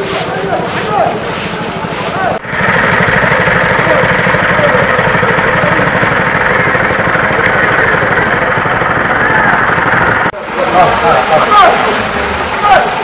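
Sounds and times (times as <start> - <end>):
engine running: 0.0 - 13.0
water spraying onto paving: 10.4 - 13.0.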